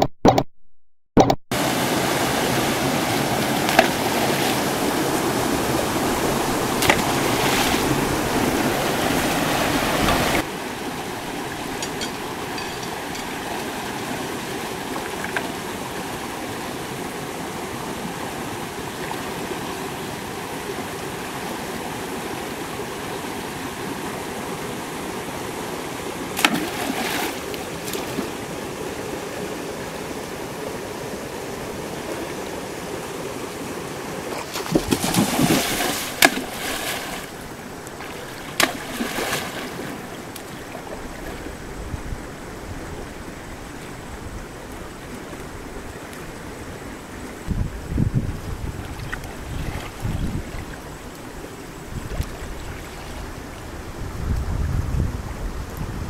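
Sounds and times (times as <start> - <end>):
rushing water of rocky stream: 1.5 - 56.0
splashes in water: 6.1 - 10.5, 26.4 - 28.4, 34.3 - 41.4.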